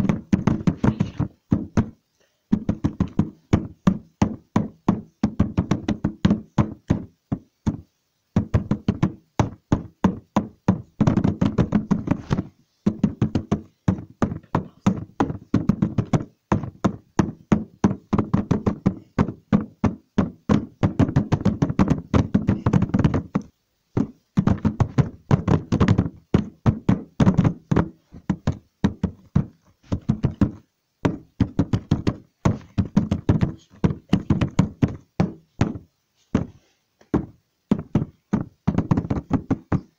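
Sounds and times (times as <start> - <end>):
rapid knocks or taps: 0.0 - 39.9.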